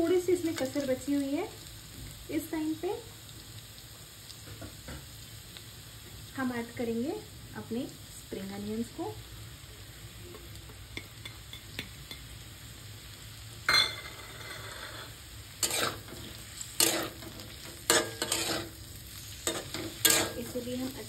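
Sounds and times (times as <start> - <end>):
vegetables sizzling in oil: 0.0 - 21.0
metal spatula scraping pan: 14.0 - 20.7.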